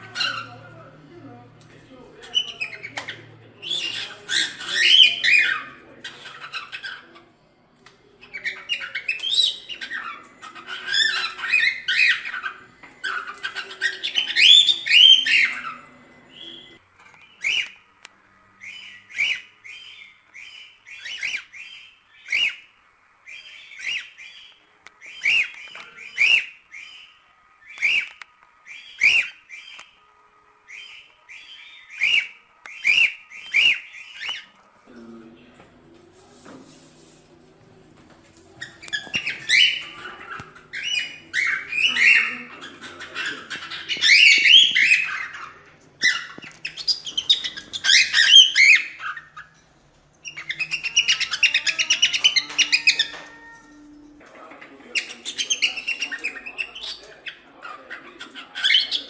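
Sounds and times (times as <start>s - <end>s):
cockatiel warbling: 0.0s - 0.7s, 8.3s - 16.8s, 38.6s - 49.6s, 50.2s - 54.1s.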